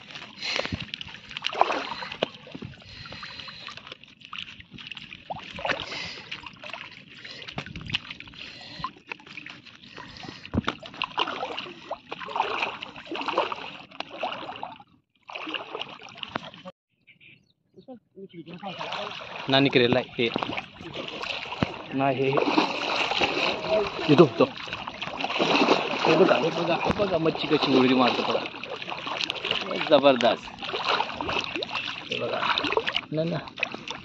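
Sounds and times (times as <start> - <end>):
fish thrashing in a net: 0.0 - 3.6, 10.2 - 16.6, 18.8 - 34.0.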